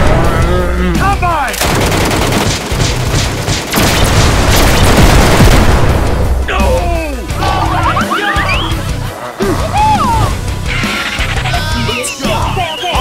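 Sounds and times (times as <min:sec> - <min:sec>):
rapid loud bangs: 0:01.6 - 0:06.6.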